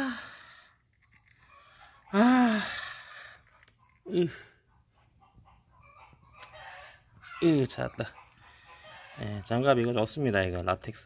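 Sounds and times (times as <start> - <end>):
chicken calling: 1.4 - 9.5.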